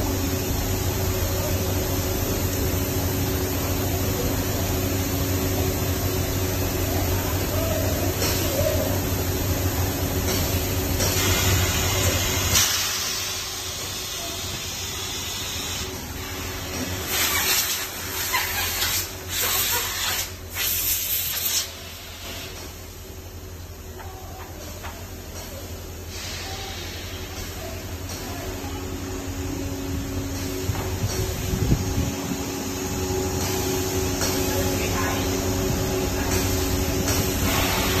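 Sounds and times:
machinery humming: 0.0 - 18.3, 21.8 - 38.0
steam hissing: 0.0 - 23.0, 25.4 - 38.0
forming press humming: 22.3 - 38.0.

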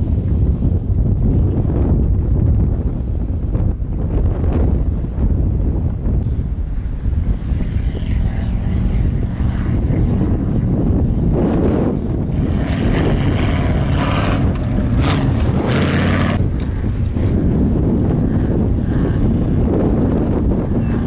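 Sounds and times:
wind rumble on microphone: 0.0 - 21.0
vehicle engine running hard: 5.6 - 21.0.

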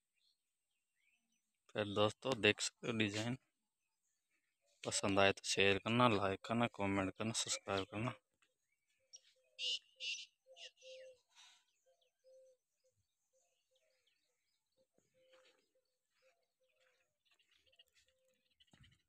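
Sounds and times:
faint birds chirping: 0.0 - 19.0.

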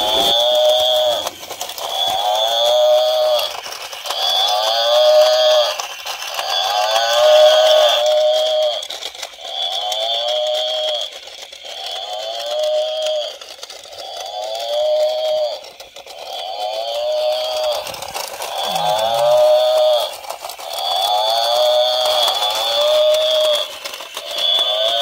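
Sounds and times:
toy speaker playing mooing call: 0.0 - 1.3, 4.2 - 5.8, 6.5 - 11.1, 16.5 - 20.2, 20.8 - 25.0
toy gears clicking: 0.0 - 25.0.

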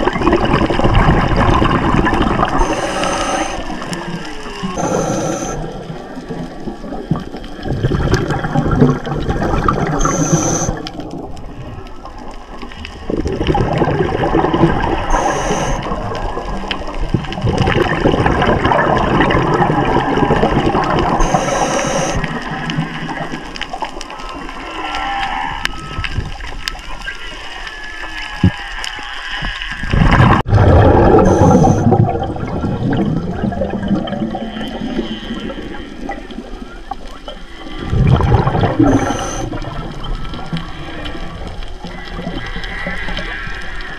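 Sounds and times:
exhaled bubbles rushing: 0.0 - 24.6, 29.5 - 43.3
whale song underwater: 0.0 - 43.9
regulator hiss: 2.5 - 4.0, 4.7 - 5.8, 10.0 - 10.9, 15.0 - 16.0, 21.2 - 22.4, 31.2 - 31.9, 38.8 - 39.6.

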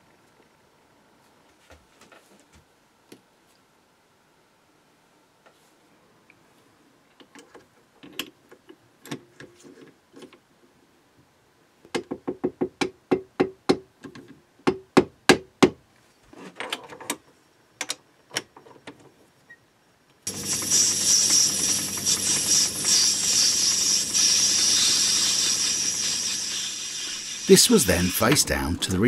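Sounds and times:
lathe starting up: 20.3 - 28.8.

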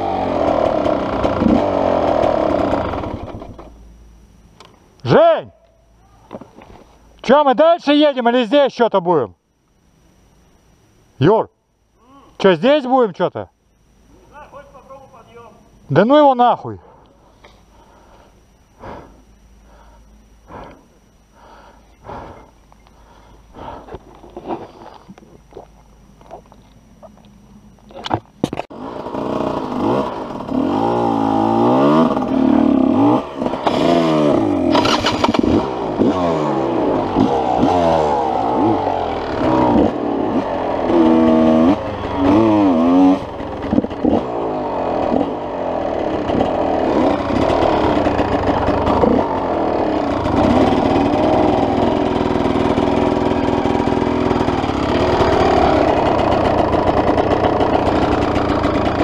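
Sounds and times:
dirt bike engine revving: 0.0 - 3.8, 28.7 - 59.0.

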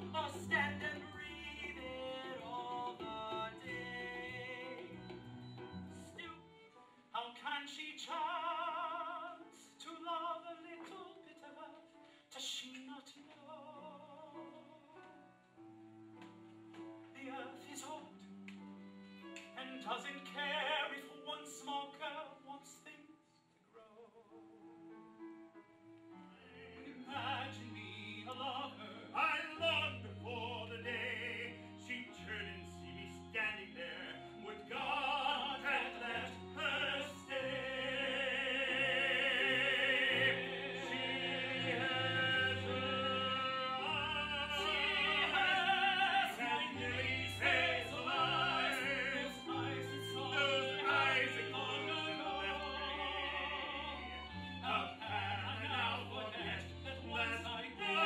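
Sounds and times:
operatic singing with vibrato: 0.0 - 5.2, 19.4 - 24.3, 26.4 - 58.0.

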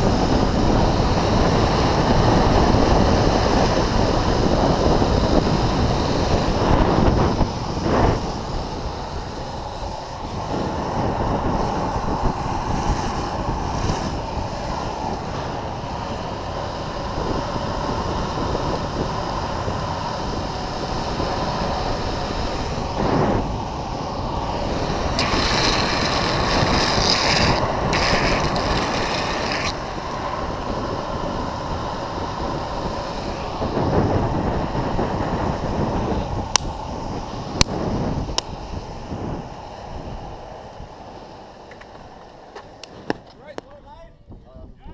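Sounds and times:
longboard wheels rolling on asphalt: 0.0 - 43.6
wind rushing over microphone: 0.0 - 44.9
bright hiss: 24.0 - 33.4.

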